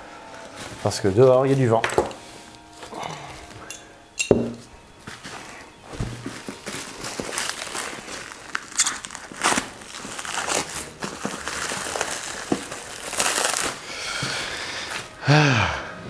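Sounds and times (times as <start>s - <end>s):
plastic packaging crinkling: 5.2s - 15.2s.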